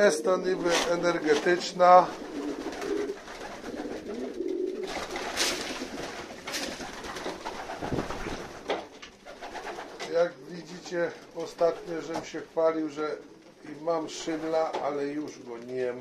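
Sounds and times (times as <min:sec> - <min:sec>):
pigeons cooing: 0:00.0 - 0:08.6
wing flapping: 0:00.5 - 0:10.1.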